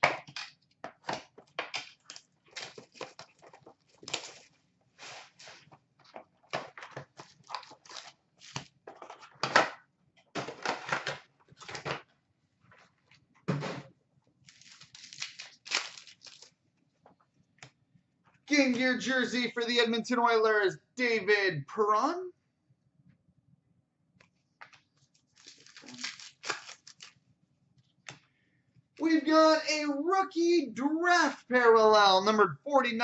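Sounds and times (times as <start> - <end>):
cardboard tearing and rustling: 2.1 - 5.7, 7.1 - 8.7, 14.5 - 16.5, 25.3 - 27.2.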